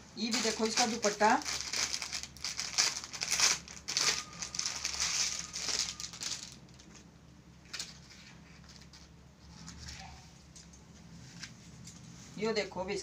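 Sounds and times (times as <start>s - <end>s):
fabric packaging crinkling: 0.2s - 10.2s.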